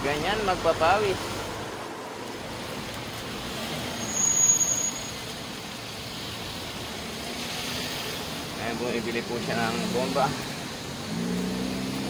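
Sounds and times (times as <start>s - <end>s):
street traffic noise: 0.0s - 12.0s
brief high-pitched squeal: 3.9s - 5.3s.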